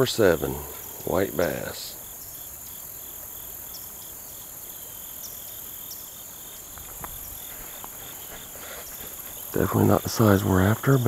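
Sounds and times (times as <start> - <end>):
insect pulsing chirp: 0.0 - 11.0
insects high-pitched hiss: 0.0 - 11.0
faint clicks: 6.7 - 9.5.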